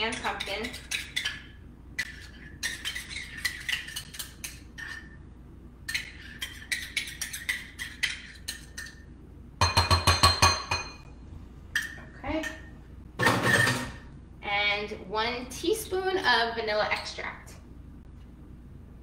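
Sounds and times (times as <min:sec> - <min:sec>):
metal spoon scraping metal cup: 0:00.1 - 0:05.1.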